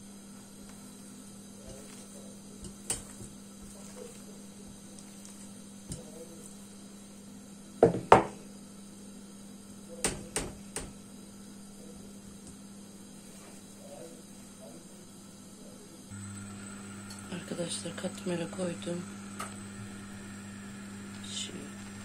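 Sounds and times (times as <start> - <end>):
rolling pin knocking on wooden table: 7.8 - 8.4.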